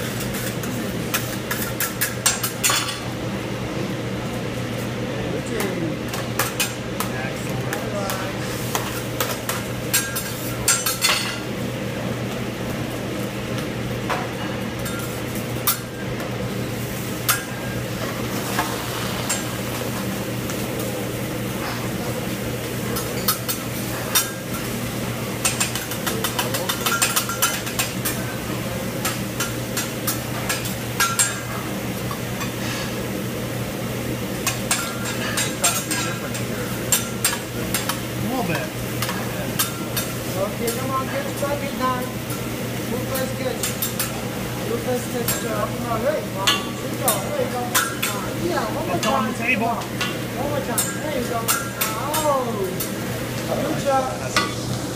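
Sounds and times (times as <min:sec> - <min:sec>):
metal utensils clinking on griddle: 0:00.0 - 0:03.0, 0:07.7 - 0:11.4, 0:14.1 - 0:16.1, 0:22.9 - 0:24.8, 0:25.4 - 0:28.3, 0:29.0 - 0:32.9, 0:34.4 - 0:38.1, 0:39.0 - 0:41.7, 0:42.3 - 0:48.3, 0:48.9 - 0:53.0
food sizzling: 0:00.0 - 0:54.9.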